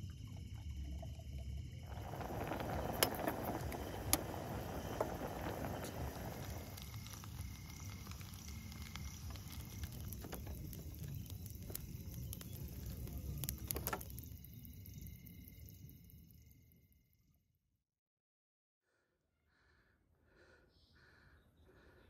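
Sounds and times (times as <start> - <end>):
water boiling in a pot: 0.0 - 16.9
food cooking in a pan: 1.4 - 16.9.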